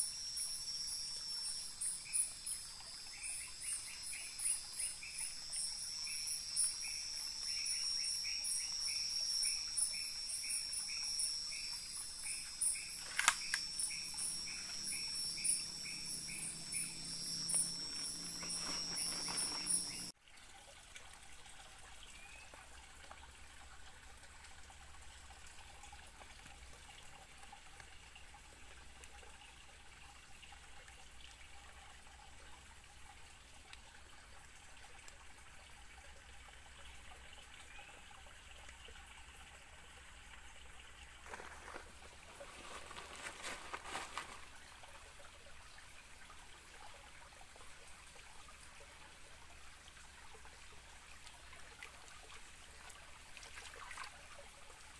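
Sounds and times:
insects trilling: 0.0 - 20.1
faint trickle of running water: 0.0 - 54.9
sharp click: 13.0 - 13.6.

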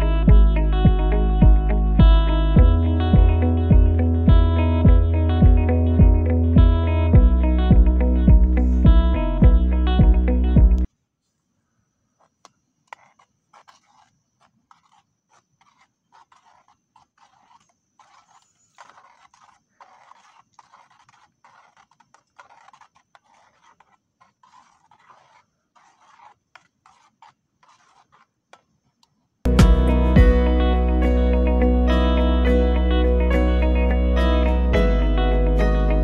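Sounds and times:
metal spoon stirring in metal pot: 14.7 - 28.3.

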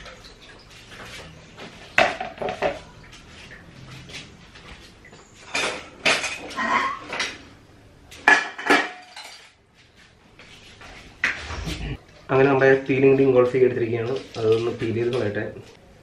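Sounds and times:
dishes and utensils clattering: 5.5 - 7.4, 8.2 - 9.6.

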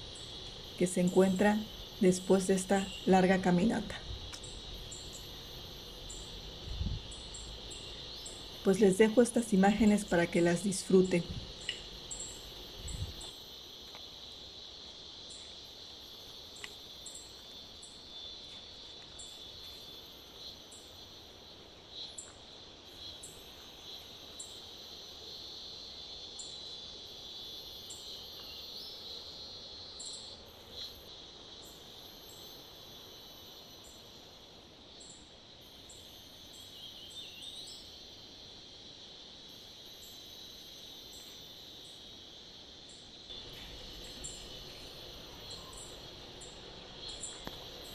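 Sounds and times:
insect buzzing trill: 0.0 - 47.9
short high insect chirps: 4.0 - 9.0, 10.6 - 14.1, 42.9 - 47.9.

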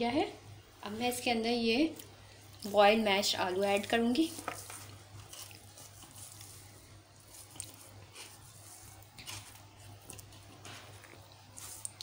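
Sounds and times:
spatula squishing mashed potato: 2.5 - 12.0.

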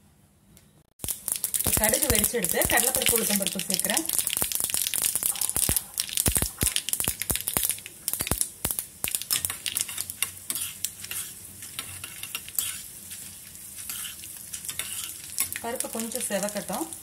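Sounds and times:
popping and crackling: 1.0 - 17.0
seeds sizzling in hot oil: 1.0 - 17.0.

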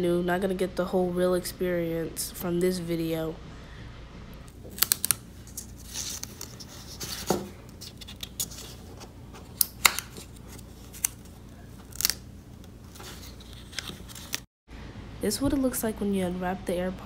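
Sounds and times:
low background hum: 0.0 - 17.0
plastic film peeling crackles: 4.5 - 14.5.

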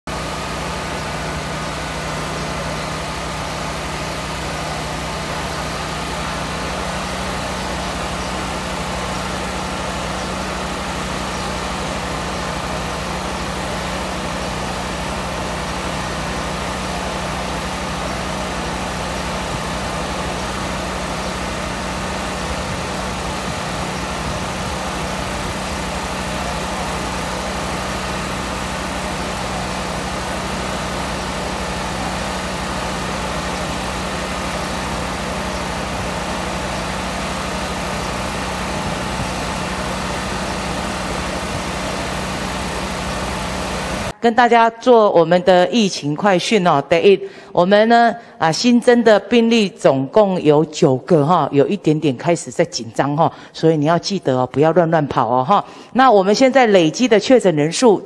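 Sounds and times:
mechanical drone with low hum: 0.1 - 44.2.

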